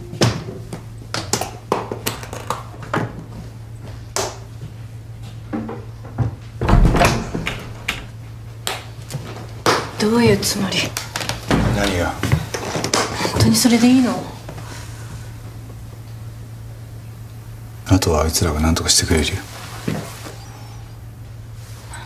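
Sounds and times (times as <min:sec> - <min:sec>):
steady low hum: 0:00.0 - 0:22.0
objects knocking and thudding: 0:05.5 - 0:08.1.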